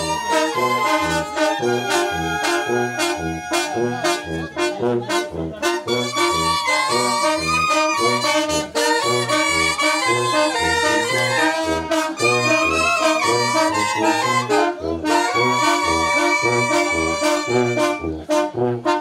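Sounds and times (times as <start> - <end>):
brass band playing: 0.0 - 19.0.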